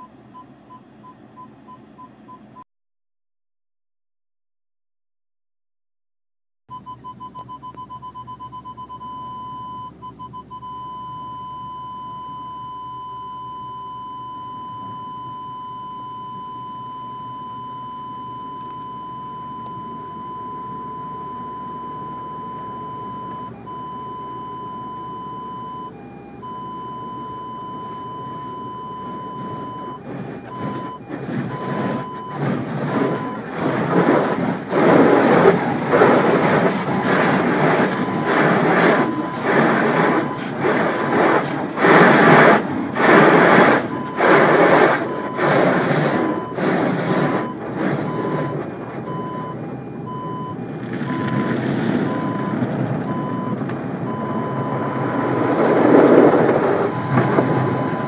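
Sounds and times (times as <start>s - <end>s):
parking sensor beeping: 0.0s - 2.6s, 6.7s - 58.0s
car wash brushes and water spray: 27.1s - 58.0s.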